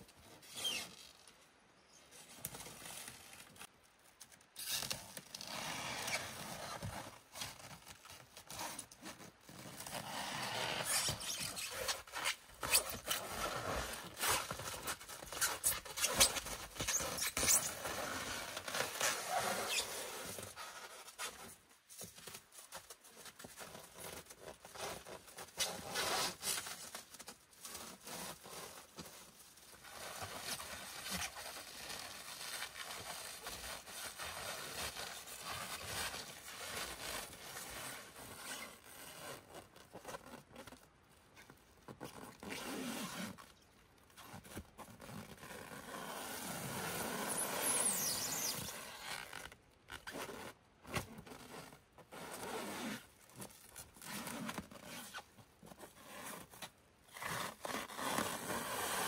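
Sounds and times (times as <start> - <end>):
plastic stretch wrap crinkling: 10.8 - 21.4, 22.1 - 46.4.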